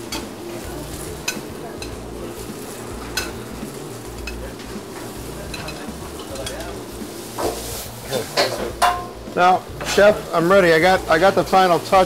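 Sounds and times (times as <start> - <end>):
food sizzling in a hot pan: 0.0 - 12.0
metal tongs clicking against pan: 0.1 - 0.3, 1.2 - 2.0, 3.0 - 3.4, 4.2 - 6.8.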